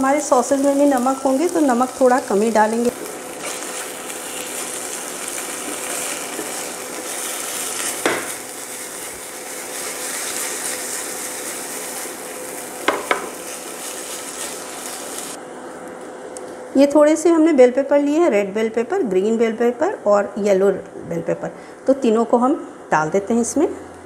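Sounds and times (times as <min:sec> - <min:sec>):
vegetables sizzling in a pan: 0:00.0 - 0:15.4
spatula knocking on pan: 0:08.0 - 0:08.4, 0:12.8 - 0:13.4.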